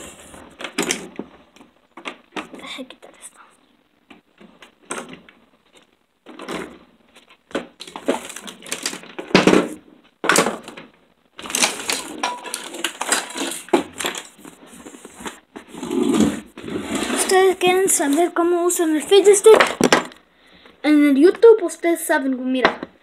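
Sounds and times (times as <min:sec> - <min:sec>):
objects being handled: 0:04.1 - 0:20.2.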